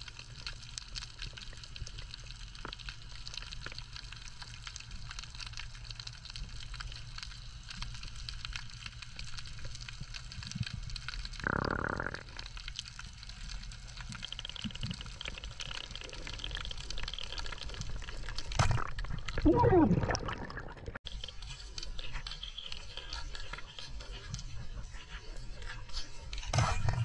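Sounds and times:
water sloshing and bubbling: 0:00.0 - 0:27.0
water gurgling: 0:10.3 - 0:23.5.

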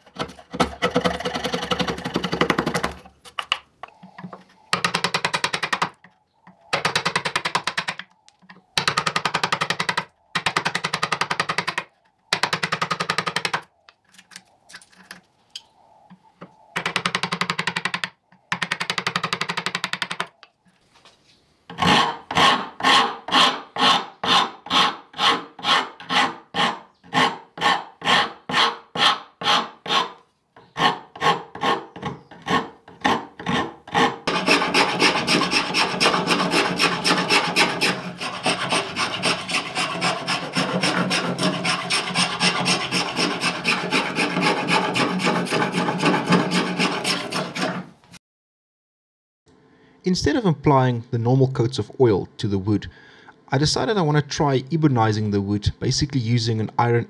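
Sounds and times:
chisel on wood: 0:00.1 - 0:13.7, 0:16.8 - 0:20.4, 0:21.7 - 0:47.9
file rasping wood: 0:00.2 - 0:03.0, 0:21.7 - 0:48.0
spokeshave scraping wood: 0:20.6 - 0:48.2.

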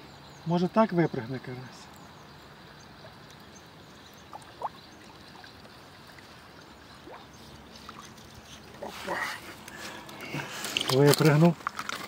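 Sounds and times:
fish splashing in water: 0:04.2 - 0:11.0.

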